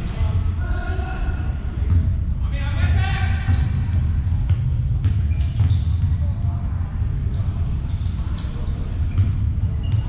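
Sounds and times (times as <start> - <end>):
sneaker squeaks: 0.0 - 1.1, 1.8 - 10.0
basketball bouncing: 2.8 - 6.2, 9.1 - 10.0.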